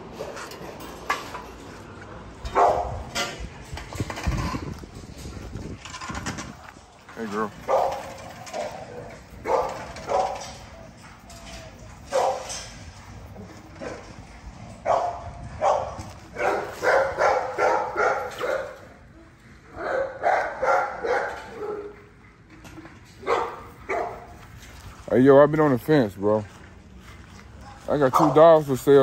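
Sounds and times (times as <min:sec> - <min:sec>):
dogs barking: 0:02.4 - 0:03.2, 0:07.6 - 0:11.0, 0:12.0 - 0:12.8, 0:13.7 - 0:14.2, 0:14.8 - 0:19.0, 0:19.7 - 0:22.2, 0:23.1 - 0:24.4, 0:28.0 - 0:28.6.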